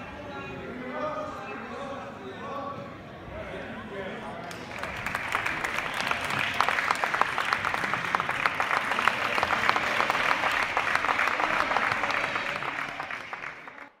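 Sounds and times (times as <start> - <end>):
spectators applauding: 4.5 - 14.0.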